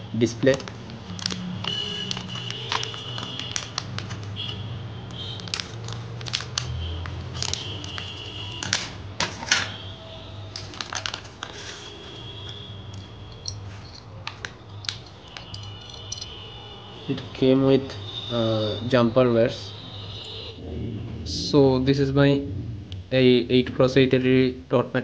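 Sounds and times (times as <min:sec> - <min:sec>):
plastic bag crinkling: 0:00.6 - 0:04.5, 0:05.2 - 0:08.7, 0:10.6 - 0:12.1.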